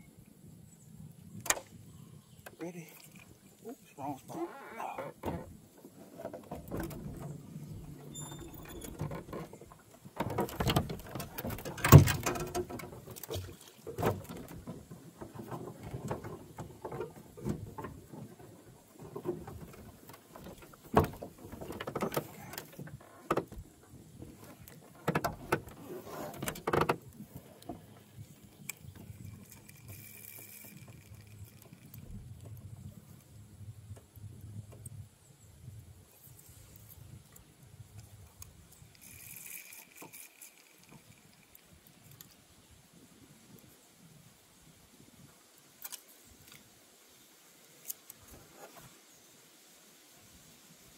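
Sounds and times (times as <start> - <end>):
knocks and clatter in a boat: 4.8 - 33.2, 33.8 - 35.0.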